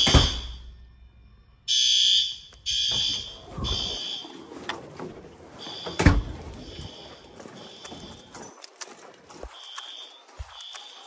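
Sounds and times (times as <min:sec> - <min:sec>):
fire alarm horn blasts: 0:01.7 - 0:04.4, 0:05.5 - 0:08.6, 0:09.4 - 0:11.0.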